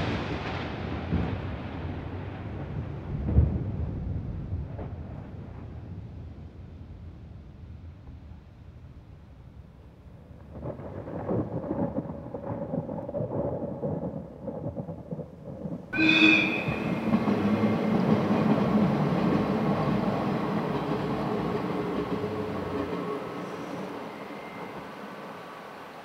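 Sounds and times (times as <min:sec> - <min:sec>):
train rumbling over viaduct: 0:14.1 - 0:26.0
brief ringing tone: 0:16.0 - 0:17.9.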